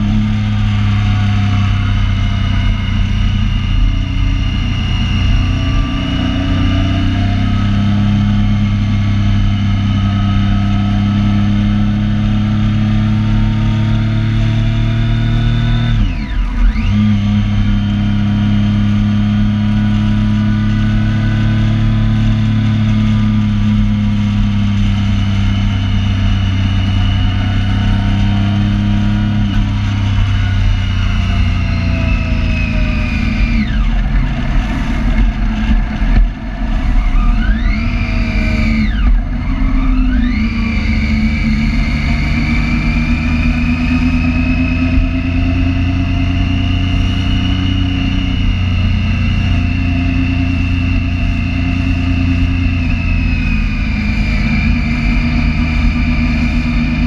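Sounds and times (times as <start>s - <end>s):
motorcycle engine cruising: 0.0s - 57.0s.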